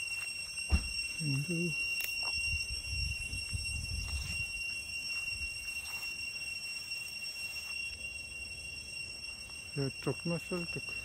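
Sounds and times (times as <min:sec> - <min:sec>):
cicadas droning: 0:00.0 - 0:11.0.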